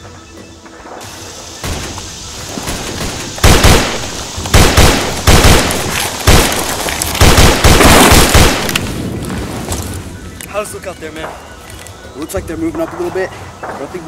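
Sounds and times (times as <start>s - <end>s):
rifle gunfire bursts: 3.4s - 9.0s.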